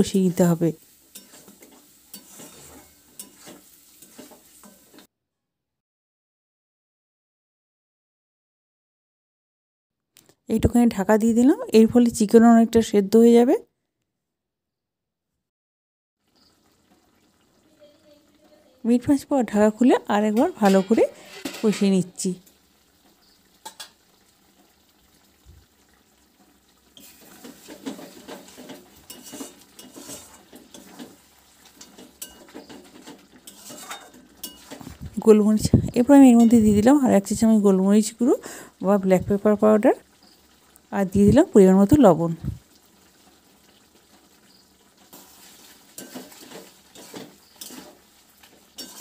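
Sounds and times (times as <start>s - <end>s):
spatula scraping metal pan: 0.9s - 5.1s, 20.3s - 22.1s, 27.0s - 35.0s, 45.0s - 49.0s
clinks against pan: 29.0s - 30.1s, 31.9s - 32.8s, 33.5s - 34.8s.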